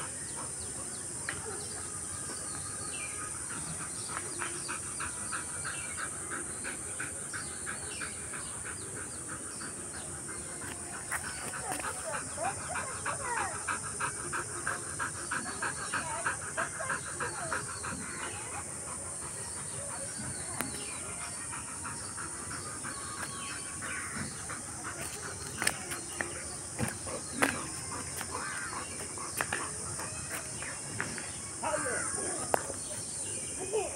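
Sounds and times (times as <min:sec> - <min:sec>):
puppy panting: 0:00.0 - 0:33.9.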